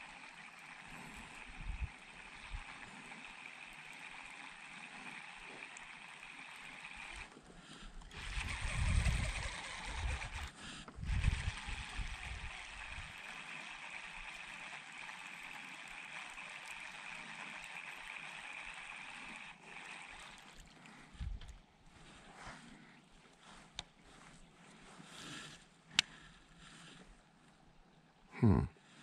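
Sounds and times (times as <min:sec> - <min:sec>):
wind buffeting microphone: 0:08.2 - 0:13.1.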